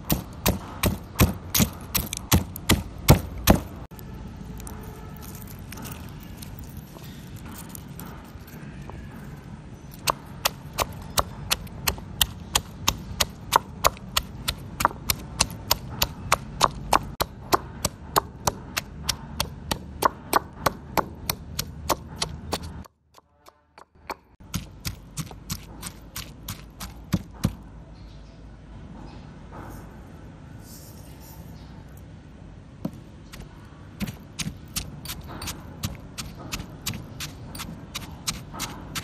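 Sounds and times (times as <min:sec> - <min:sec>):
stone pestle pounding in mortar: 0:00.0 - 0:03.8, 0:10.0 - 0:22.9, 0:23.8 - 0:27.6, 0:34.0 - 0:39.0.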